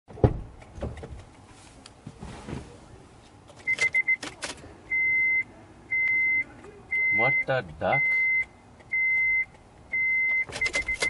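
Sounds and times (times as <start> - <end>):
soft knocks and rustling: 0.2 - 2.8
car warning chime beeping: 3.7 - 4.2, 4.9 - 11.0.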